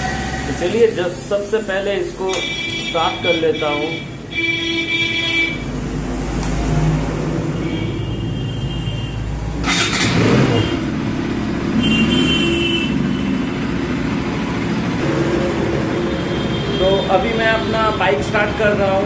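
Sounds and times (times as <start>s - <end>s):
motorcycle engine starting and running: 0.0s - 2.4s, 9.3s - 19.0s.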